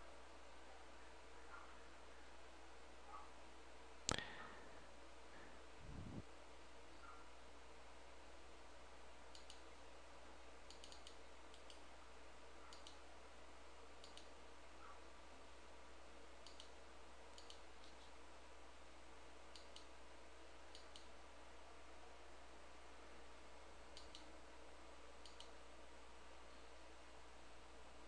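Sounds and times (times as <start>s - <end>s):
steady low hum: 0.0s - 28.0s
computer mouse clicking: 9.3s - 9.7s, 10.7s - 11.9s, 12.7s - 13.0s, 14.0s - 14.4s, 16.4s - 18.1s, 19.5s - 19.9s, 20.7s - 21.2s, 23.9s - 24.3s, 25.2s - 25.6s.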